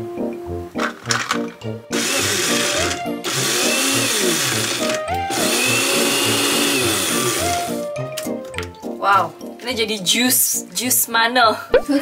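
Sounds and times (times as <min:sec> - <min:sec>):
background music: 0:00.0 - 0:12.0
electric mini chopper whirring: 0:00.9 - 0:07.8.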